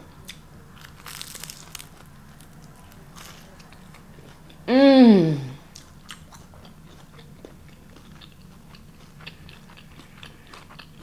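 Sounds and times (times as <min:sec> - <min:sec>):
person chewing: 0:00.2 - 0:11.0
crisp wrapper crackling: 0:00.8 - 0:03.6.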